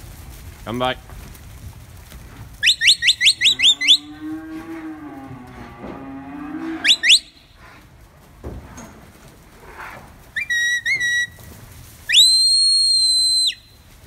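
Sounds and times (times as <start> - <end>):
cow mooing: 3.5 - 7.2
short rising whistle notes: 12.1 - 13.7.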